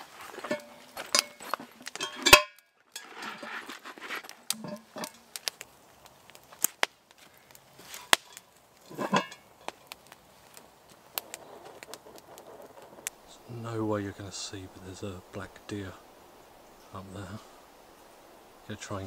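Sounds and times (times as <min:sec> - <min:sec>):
cast iron pot clanking: 0:00.0 - 0:03.8, 0:04.5 - 0:05.2, 0:08.0 - 0:10.0
wood fire crackling: 0:00.0 - 0:19.0
pot knocking down: 0:08.9 - 0:09.4.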